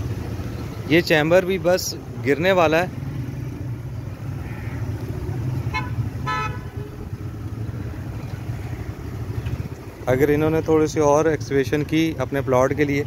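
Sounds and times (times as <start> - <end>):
road traffic rumble: 0.0 - 13.0
vehicle horn tooting: 5.7 - 7.0.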